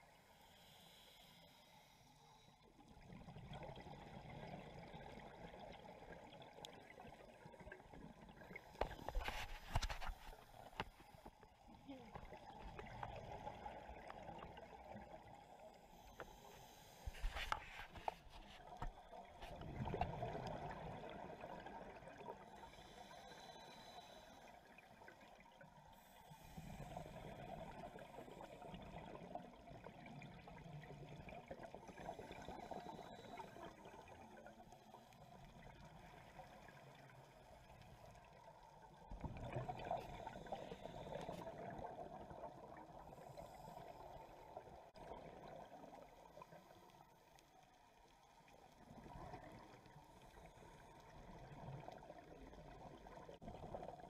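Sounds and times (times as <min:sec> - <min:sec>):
regulator bubbles gurgling underwater: 0:02.8 - 0:09.4, 0:18.7 - 0:54.0.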